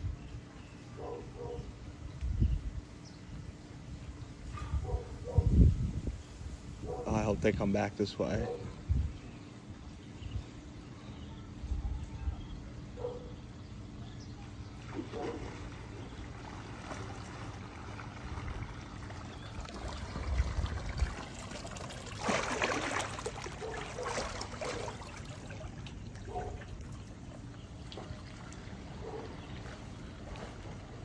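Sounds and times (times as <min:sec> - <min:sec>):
water splashing and trickling: 0:14.6 - 0:31.0.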